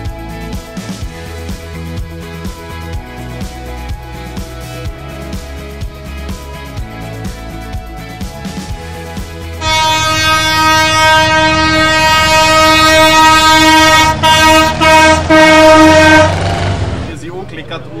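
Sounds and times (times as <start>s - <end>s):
air horn blowing: 9.6s - 16.8s.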